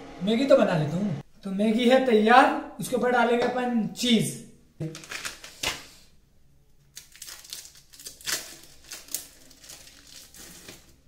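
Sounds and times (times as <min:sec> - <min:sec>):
plastic wrapping crinkling: 0:04.8 - 0:06.0, 0:06.9 - 0:11.0.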